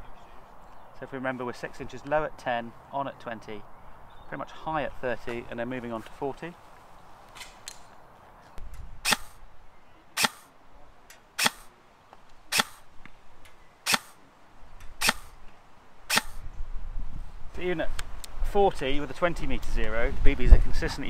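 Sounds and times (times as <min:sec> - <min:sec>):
airsoft rifle shots cracking: 0:09.0 - 0:09.4, 0:10.2 - 0:10.5, 0:11.4 - 0:11.7, 0:12.5 - 0:12.9, 0:13.8 - 0:14.2, 0:15.0 - 0:15.4, 0:16.1 - 0:16.4.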